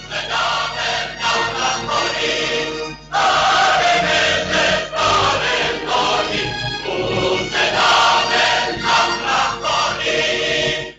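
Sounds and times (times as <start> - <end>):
choir singing with instruments: 0.0 - 10.9.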